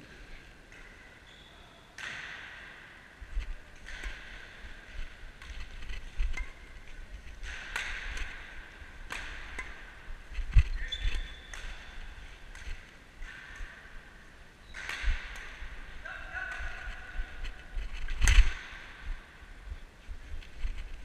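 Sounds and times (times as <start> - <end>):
rackets hitting shuttlecock: 0.7 - 1.2, 1.9 - 19.4
shoes squeaking on court: 10.4 - 12.9.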